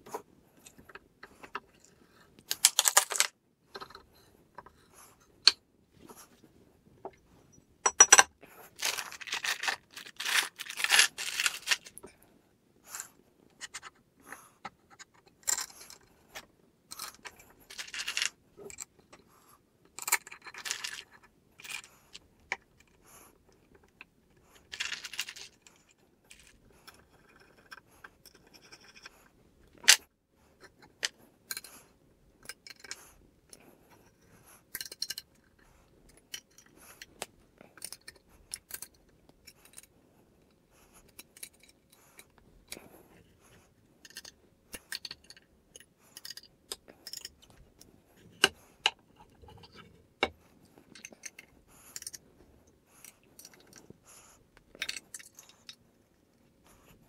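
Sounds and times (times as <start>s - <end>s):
metal parts clinking and scraping: 2.5s - 4.0s, 7.8s - 12.1s, 16.9s - 18.9s, 24.7s - 25.7s, 34.8s - 35.3s.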